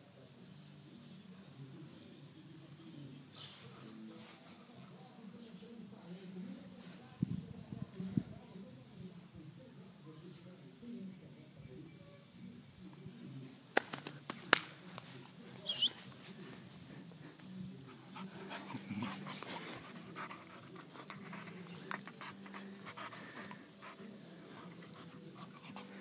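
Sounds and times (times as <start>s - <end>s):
puppy panting: 17.0s - 26.0s
puppy mouthing a hand: 17.1s - 26.0s.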